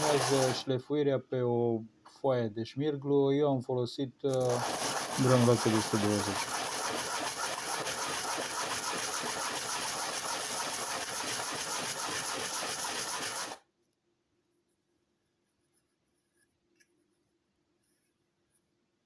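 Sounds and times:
plastic rasping on sandpaper: 0.0s - 0.6s, 4.3s - 13.6s.

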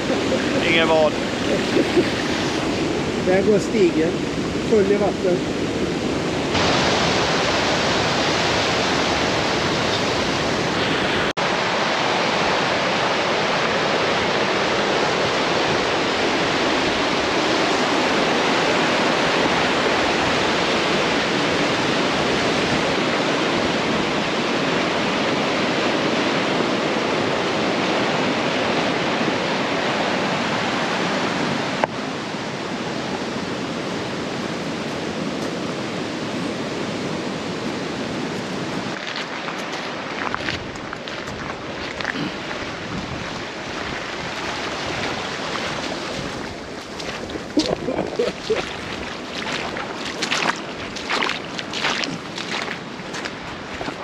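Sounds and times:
white-water rapids rushing: 0.0s - 54.0s.

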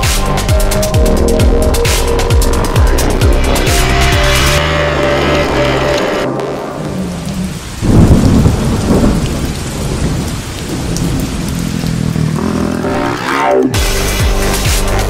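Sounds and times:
rain hiss: 2.0s - 15.0s
low rumble of thunder: 7.4s - 12.2s.

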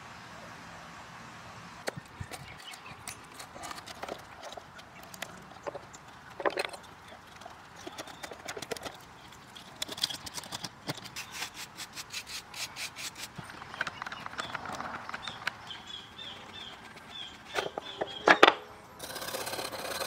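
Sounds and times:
chisel scraping wood: 9.6s - 18.4s, 19.0s - 20.0s
bristle brush sweeping shavings: 11.1s - 13.4s.

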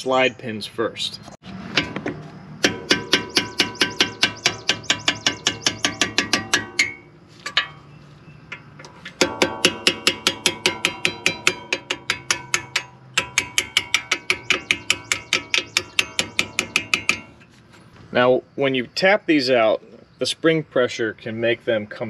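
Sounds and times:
hammer tapping metal punch: 1.7s - 7.9s, 8.5s - 17.4s.

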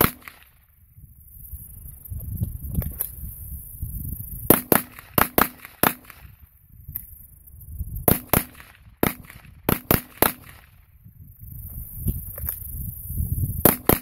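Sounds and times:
rifle gunshots: 0.0s - 0.5s, 4.5s - 6.3s, 8.1s - 10.7s.

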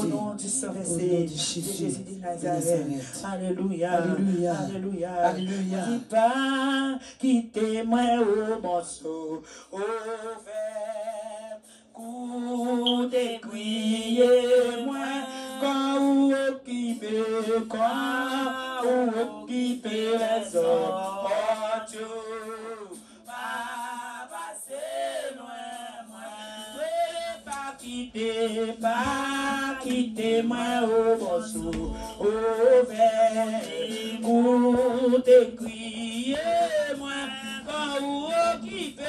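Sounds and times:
person singing a prayer chant: 0.0s - 39.0s.

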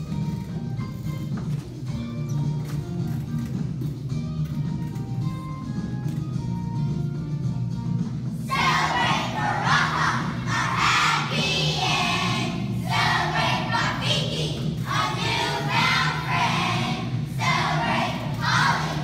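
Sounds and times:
low musical accompaniment: 0.0s - 19.0s
children singing: 8.5s - 19.0s.

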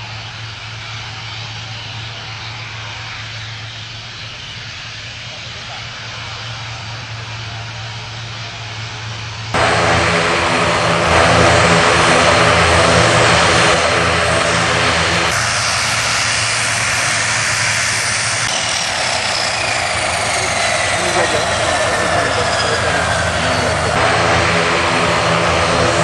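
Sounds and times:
turboprop engines droning: 0.0s - 26.0s
faint falling whine: 6.2s - 26.0s
buzzing hum: 9.4s - 16.7s, 18.8s - 26.0s.

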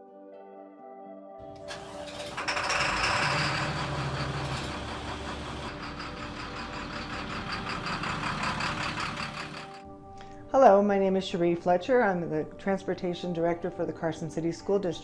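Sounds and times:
bus engine running: 1.6s - 9.8s.

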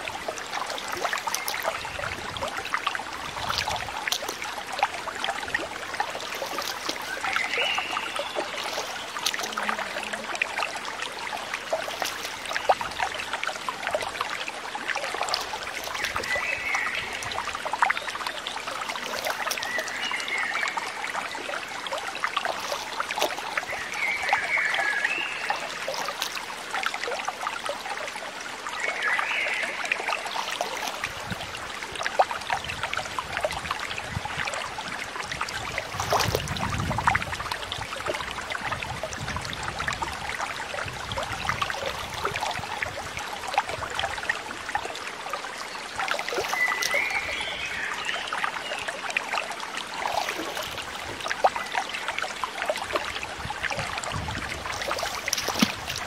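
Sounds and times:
shallow water splashing: 0.0s - 27.4s, 30.1s - 32.5s, 35.5s - 38.1s, 45.9s - 48.8s, 49.8s - 56.0s.

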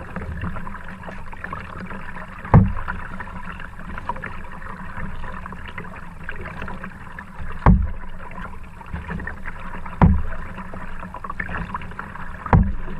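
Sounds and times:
water trickling and splashing: 0.0s - 12.9s
heavy low thumps: 2.6s - 2.8s, 7.6s - 8.0s, 10.0s - 10.3s, 12.6s - 12.8s.

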